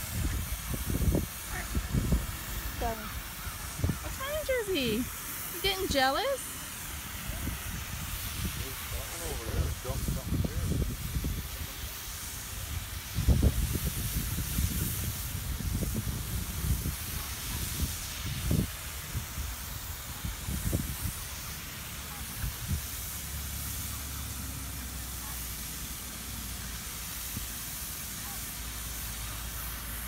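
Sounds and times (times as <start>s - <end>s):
wind buffeting microphone: 0.0s - 4.6s, 7.3s - 21.2s
steady high hiss: 0.0s - 30.0s.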